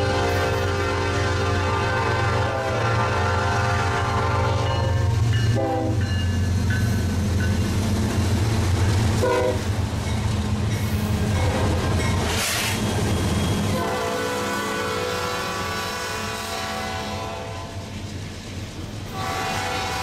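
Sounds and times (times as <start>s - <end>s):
multi-note train horn: 0.0s - 6.1s, 9.2s - 9.7s, 13.7s - 17.9s, 19.1s - 20.0s
locomotive engines rumbling: 0.0s - 20.0s.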